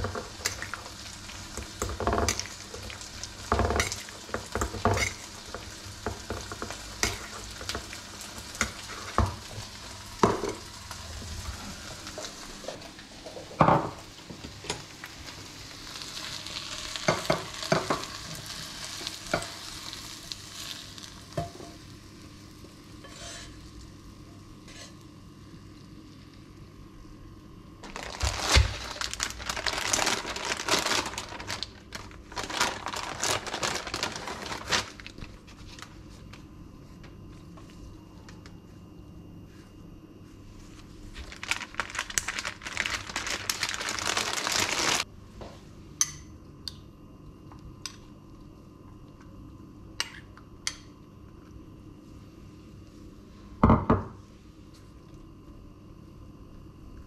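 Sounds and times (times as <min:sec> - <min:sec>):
food sizzling in a frying pan: 0:00.0 - 0:26.6
plastic packet crinkling: 0:27.8 - 0:35.4, 0:41.2 - 0:45.0.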